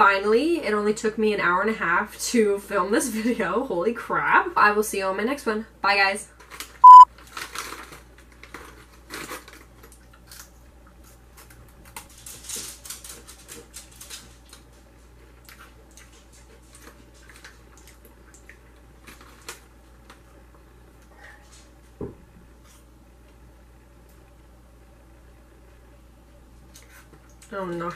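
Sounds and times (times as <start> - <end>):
plastic snack packet crinkling: 6.4 - 10.6.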